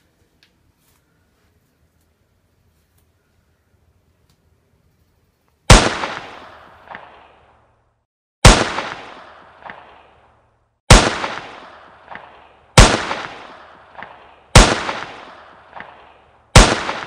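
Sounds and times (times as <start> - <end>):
gunshots with rolling echo: 5.7 - 7.8, 8.4 - 17.0.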